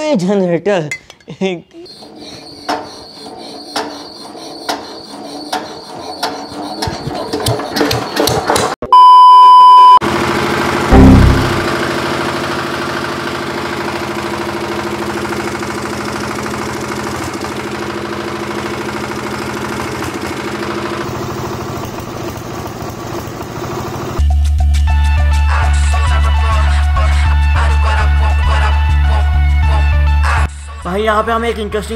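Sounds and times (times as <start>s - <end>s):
short electronic beep: 8.8s - 10.0s, 10.9s - 11.7s
diesel generator engine running: 10.0s - 24.2s
loud low bang: 10.9s - 11.8s.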